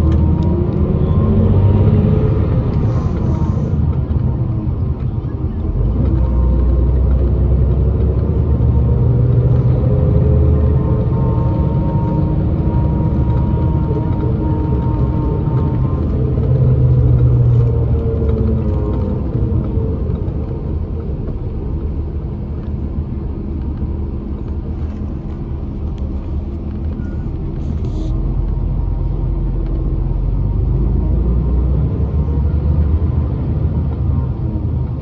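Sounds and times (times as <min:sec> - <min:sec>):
bus engine drone: 0:00.0 - 0:35.0.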